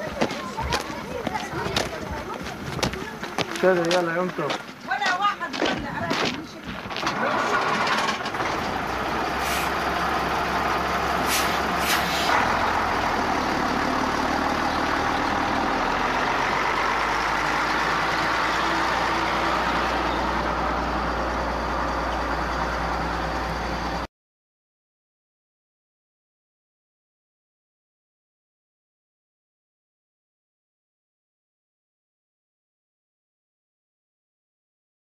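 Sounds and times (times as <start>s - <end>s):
bus engine running: 0.0s - 24.1s
short hisses: 9.4s - 9.8s, 11.2s - 12.4s.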